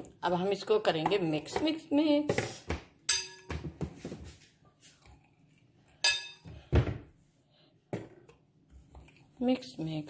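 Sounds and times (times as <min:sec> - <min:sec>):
spoon clinking on glass bowl: 0:03.1 - 0:03.5, 0:06.0 - 0:06.4
soft stirring: 0:04.0 - 0:06.4, 0:07.3 - 0:10.0.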